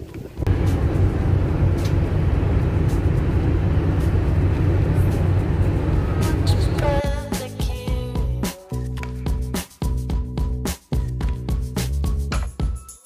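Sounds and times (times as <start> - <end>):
ferry engine rumble: 0.0 - 8.4.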